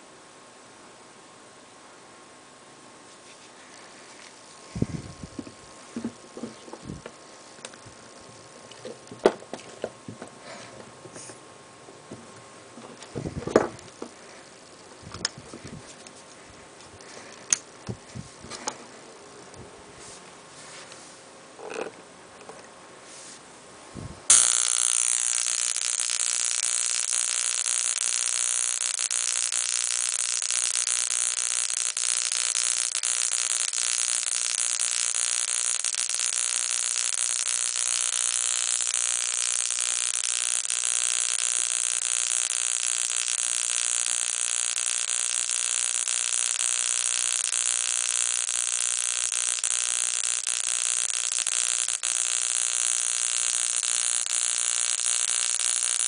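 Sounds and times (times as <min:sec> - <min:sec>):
electric sparks sizzling buzz: 0:03.1 - 0:11.4, 0:12.7 - 0:19.6, 0:24.3 - 0:56.0.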